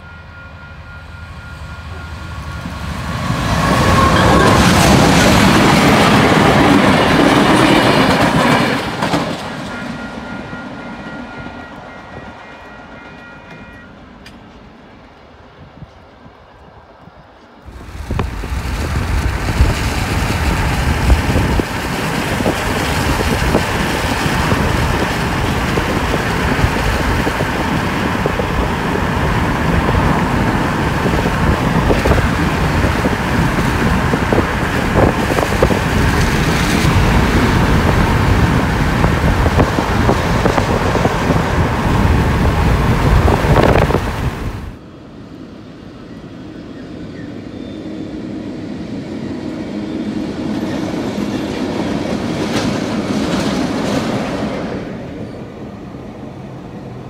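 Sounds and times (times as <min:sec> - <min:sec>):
wind buffeting microphone: 0:15.3 - 0:44.8.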